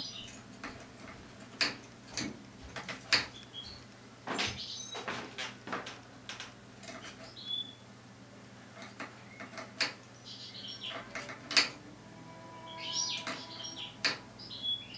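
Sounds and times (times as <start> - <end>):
bird feet tapping on cage: 0.1 - 7.4
bird chirps: 7.3 - 7.8, 10.2 - 11.1, 12.5 - 14.9.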